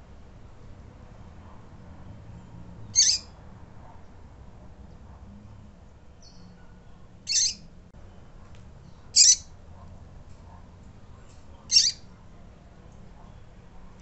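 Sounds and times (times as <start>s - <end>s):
bird high-pitched peeps: 2.9s - 3.3s, 7.3s - 7.7s, 9.2s - 9.5s, 11.6s - 12.1s.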